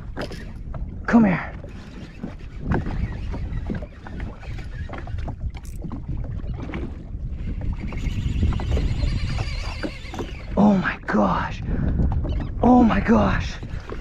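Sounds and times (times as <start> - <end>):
water sloshing against hull: 0.0 - 14.0
wind buffeting microphone: 0.0 - 14.0.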